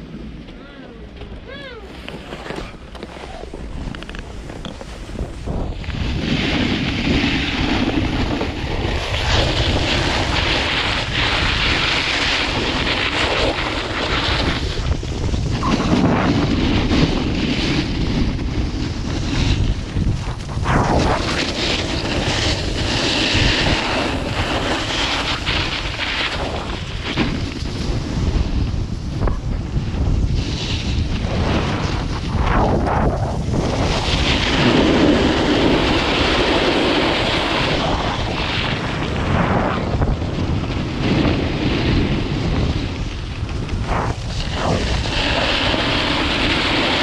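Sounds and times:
wind buffeting microphone: 0.0 - 47.0
snowboard sliding on snow: 1.5 - 47.0.

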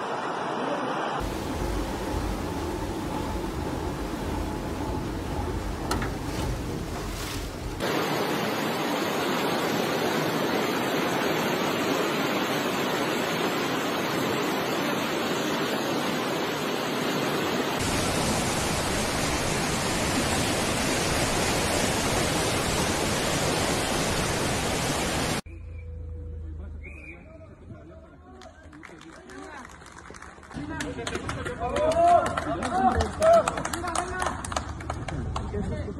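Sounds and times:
floodwater rushing: 1.2 - 25.4.

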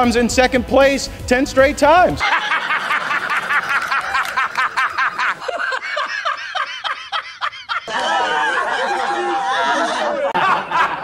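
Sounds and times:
men laughing: 2.2 - 11.0.

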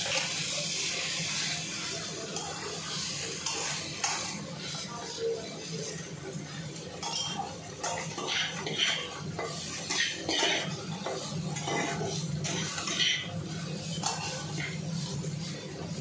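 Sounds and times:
metal spatulas scraping pans: 7.0 - 15.6.

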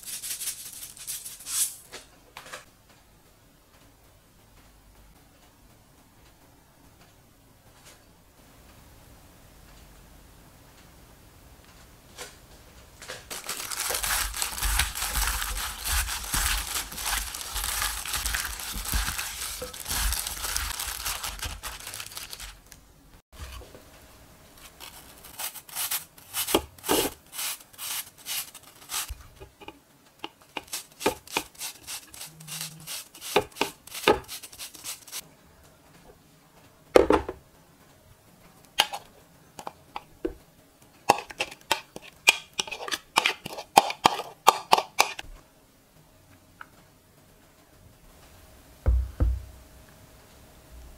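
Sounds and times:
vegetables mixed in glass bowl: 13.3 - 22.6
apple grated on grater: 13.5 - 22.0, 24.6 - 29.6, 30.2 - 35.2.

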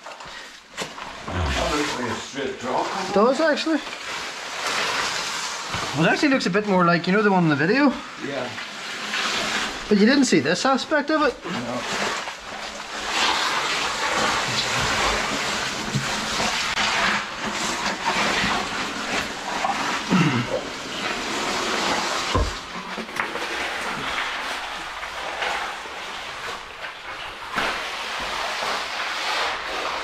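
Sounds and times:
clothing scraping on rock: 1.1 - 7.3.

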